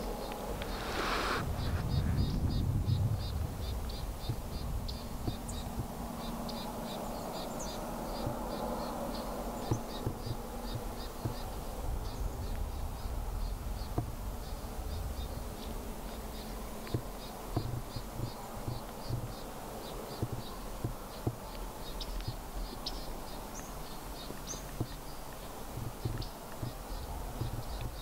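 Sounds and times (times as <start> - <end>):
low rumble: 0.0 - 6.1
soft knocks: 9.6 - 11.5, 25.8 - 28.0.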